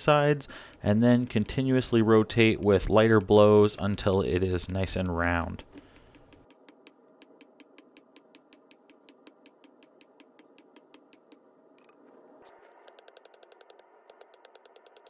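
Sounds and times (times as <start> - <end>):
faint ticking: 0.0 - 11.4.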